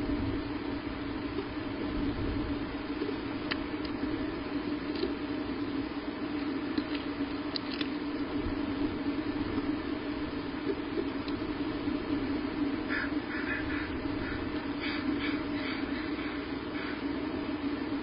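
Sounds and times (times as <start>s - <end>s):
constant hum: 0.0s - 18.0s
faint clicks and snaps: 3.0s - 4.0s, 6.4s - 8.0s, 10.6s - 11.4s.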